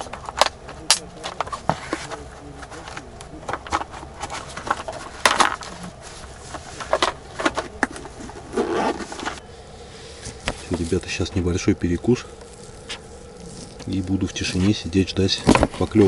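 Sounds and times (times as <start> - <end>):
fabric case rustling: 3.6 - 9.4.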